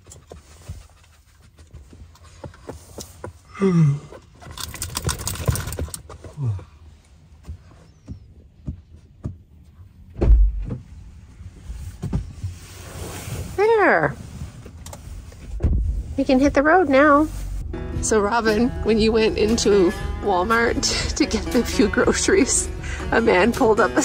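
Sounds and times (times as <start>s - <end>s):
heavy thump: 10.2s - 11.0s, 15.5s - 16.2s.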